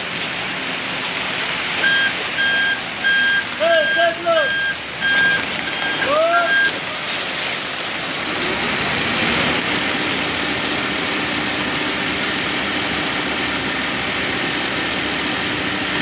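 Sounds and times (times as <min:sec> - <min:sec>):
wet concrete rushing down chute: 0:00.0 - 0:16.0.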